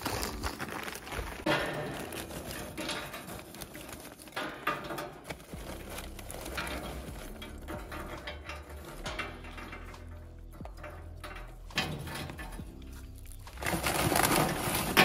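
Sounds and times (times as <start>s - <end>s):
paper bag rustling: 0.0s - 7.7s, 12.7s - 15.0s
charcoal clattering onto metal grate: 0.0s - 15.0s.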